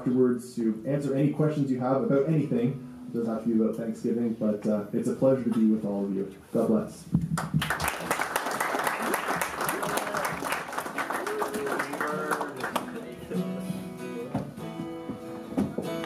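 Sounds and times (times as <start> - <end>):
audience applauding: 7.4 - 13.3
acoustic guitar picking: 12.2 - 16.0.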